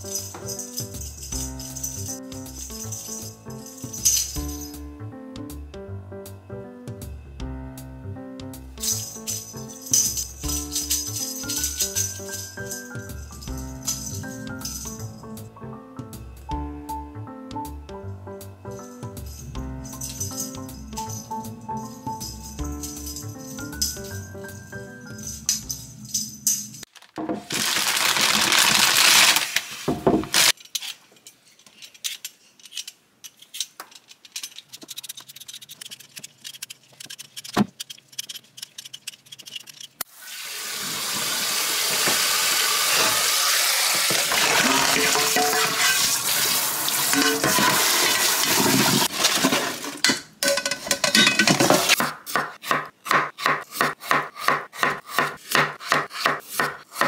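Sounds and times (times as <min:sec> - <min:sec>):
plastic bag rustling: 0:26.8 - 0:30.7, 0:44.0 - 0:50.1
tap water running into a metal bowl: 0:40.1 - 0:49.8
potatoes tumbling into a sink: 0:44.0 - 0:46.2, 0:47.0 - 0:52.0
knife chopping on a wooden board: 0:52.0 - 0:57.0.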